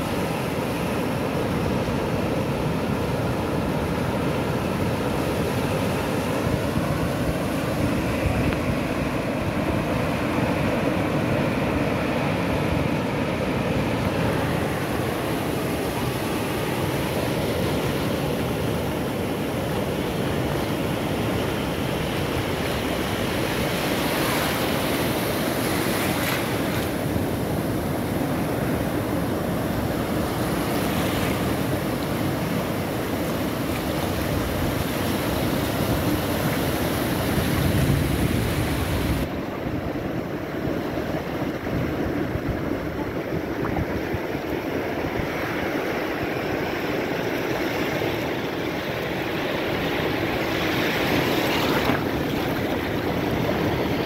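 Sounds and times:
sea surf breaking on shore: 0.0 - 54.0.

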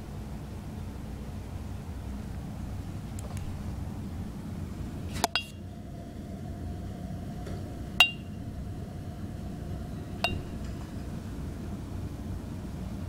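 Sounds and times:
glass cups clinking: 5.2 - 5.6, 8.0 - 8.4, 10.2 - 10.8.

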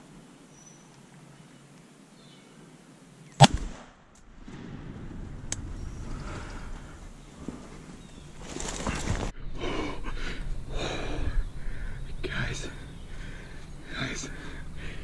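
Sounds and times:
shotgun blast: 3.4 - 5.2
rustling: 5.4 - 9.4.

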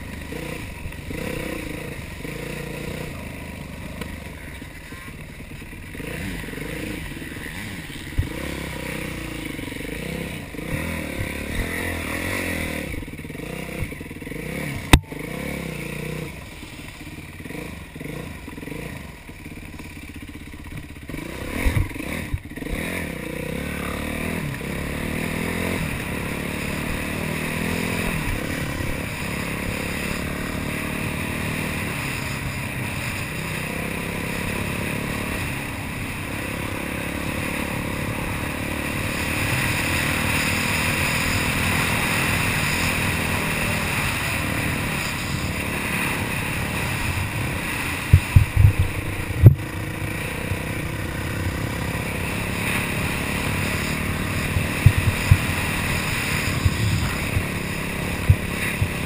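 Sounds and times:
dirt bike engine revving: 0.0 - 59.0
wind noise: 47.2 - 49.6, 54.6 - 59.0.

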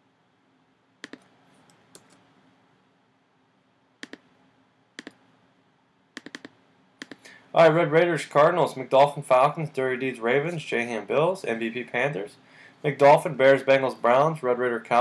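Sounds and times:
computer mouse clicking: 1.0 - 2.2, 4.0 - 4.3, 5.0 - 5.2, 6.2 - 7.3.

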